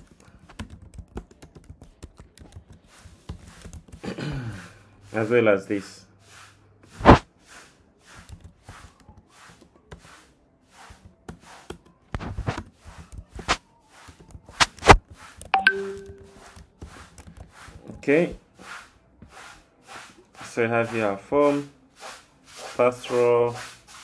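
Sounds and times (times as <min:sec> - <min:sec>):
computer keyboard typing: 0:00.0 - 0:04.1.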